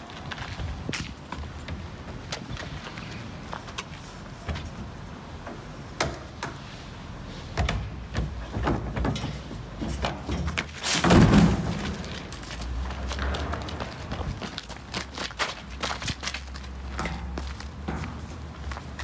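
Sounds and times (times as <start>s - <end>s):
heavy thump and rattle: 7.6s - 12.3s.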